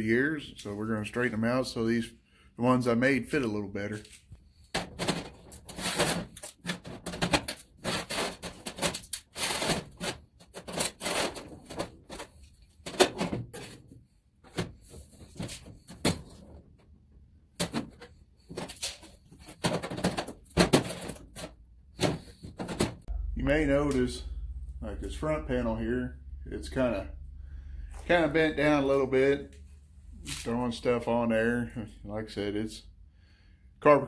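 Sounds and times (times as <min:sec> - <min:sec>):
sheet metal clattering and scraping: 0:04.6 - 0:16.6, 0:17.6 - 0:23.2.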